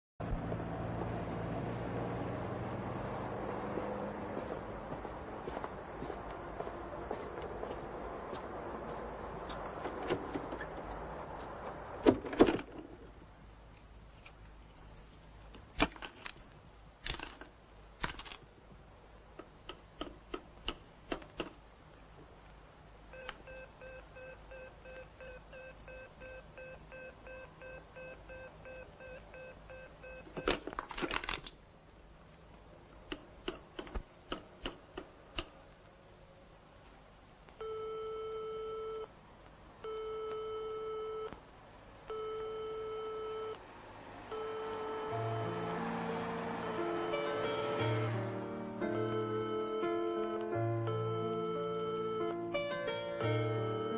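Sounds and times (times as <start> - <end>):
steady telephone tone: 23.1 - 30.5, 37.6 - 39.1, 39.8 - 41.4, 42.1 - 43.6, 44.3 - 45.5, 48.9 - 53.9
telephone busy signal beeping: 23.2 - 30.4, 37.6 - 39.1, 39.8 - 41.4, 42.1 - 43.6, 44.3 - 45.1, 49.0 - 52.4, 53.6 - 53.9.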